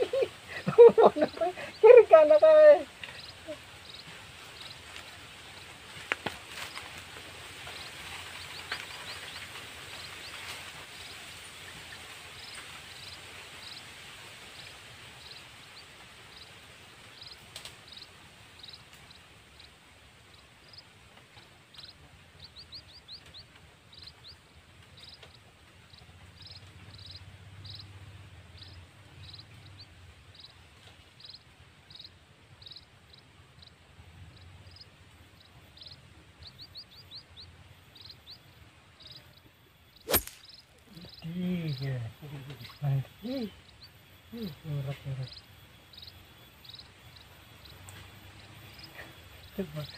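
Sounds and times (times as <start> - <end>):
steady hiss: 0.0 - 39.1, 39.9 - 49.9
small animal chirping: 40.1 - 41.9.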